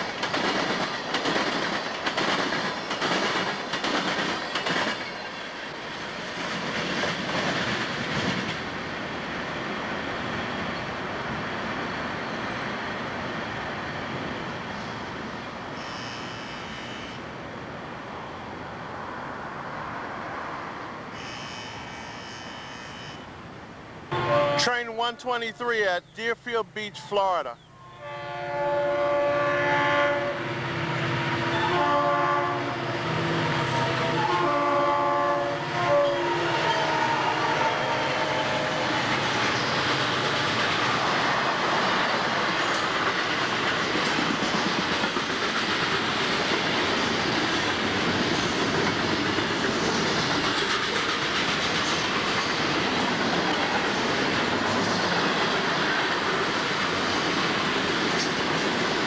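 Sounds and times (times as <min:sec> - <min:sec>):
locomotive horn blasts: 0:15.8 - 0:17.2, 0:21.2 - 0:23.3, 0:24.1 - 0:25.1, 0:28.0 - 0:30.6, 0:31.3 - 0:32.9, 0:33.7 - 0:38.2.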